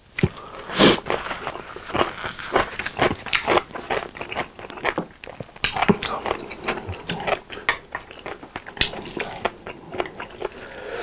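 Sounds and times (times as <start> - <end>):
nose blowing into tissue: 0.5 - 1.8
chewing and lip smacks: 1.0 - 10.7.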